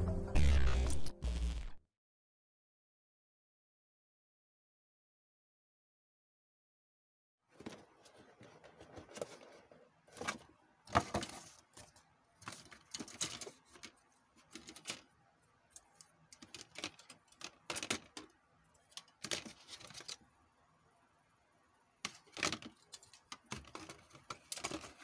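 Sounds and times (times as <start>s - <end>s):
plastic parts clacking in a box: 7.6s - 20.2s, 22.0s - 25.0s.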